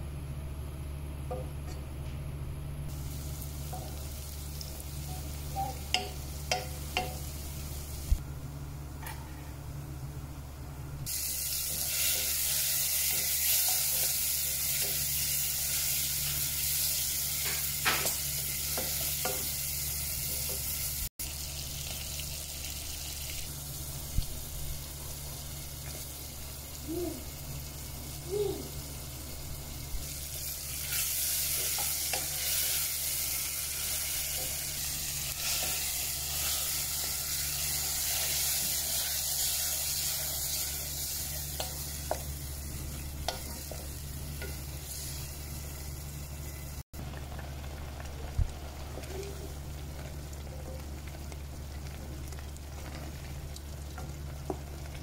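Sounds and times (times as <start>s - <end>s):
steady low hum: 0.0s - 17.7s
food sizzling in hot oil: 2.9s - 8.2s, 11.1s - 55.0s.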